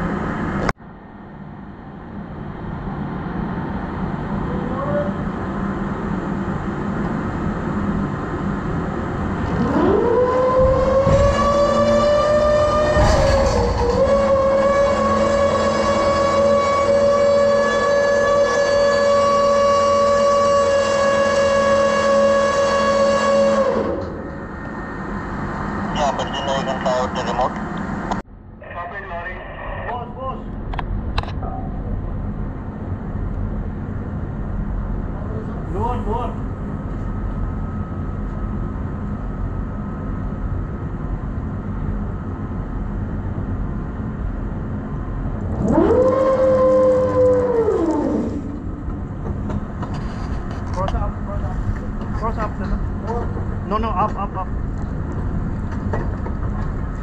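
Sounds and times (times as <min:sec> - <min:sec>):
low mechanical drone: 0:00.0 - 0:57.0
winch whining: 0:09.5 - 0:25.5, 0:45.4 - 0:50.8.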